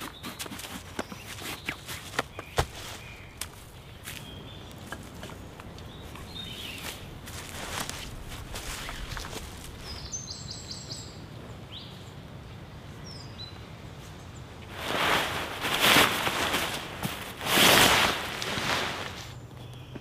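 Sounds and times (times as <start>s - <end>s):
songbird chirping: 0.0s - 20.0s
tarp fabric rustling: 6.8s - 10.1s, 14.7s - 19.4s.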